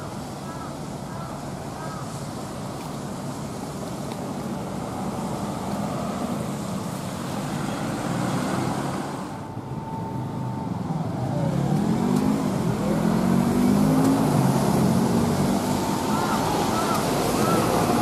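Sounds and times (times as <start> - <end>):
cars passing on wet road: 0.0 - 18.0
vehicle engine accelerating: 10.9 - 18.0.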